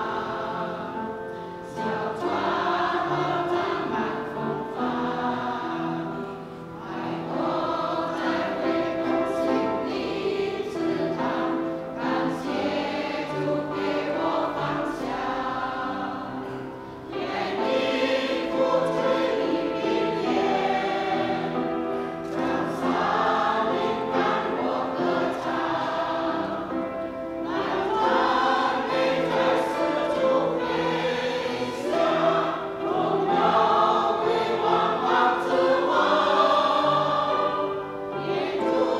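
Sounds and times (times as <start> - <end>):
choir singing a hymn: 0.0 - 38.9.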